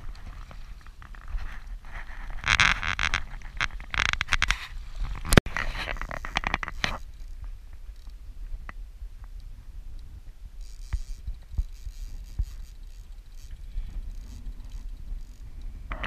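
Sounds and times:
rustling and scraping on microphone: 0.0s - 16.0s
fishing reel clicking: 5.9s - 7.4s, 10.6s - 16.0s.

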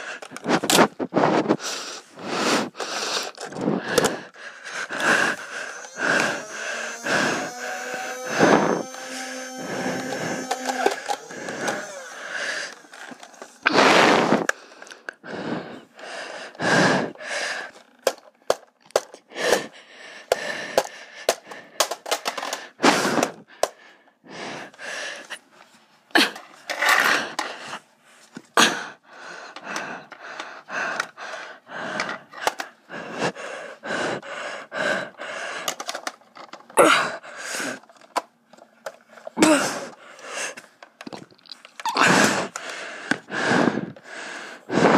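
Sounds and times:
breathing close to microphone: 0.0s - 18.2s, 19.3s - 25.7s, 26.3s - 38.1s, 39.1s - 44.9s
sharp plastic clicks: 2.7s - 13.6s, 17.7s - 19.7s, 20.3s - 23.8s, 35.5s - 36.8s.

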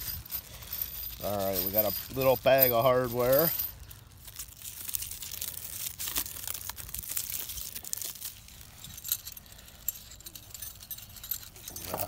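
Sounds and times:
metal brackets clinking: 0.0s - 4.0s, 7.6s - 12.0s
plastic wrap crinkling and tearing: 2.9s - 9.0s.

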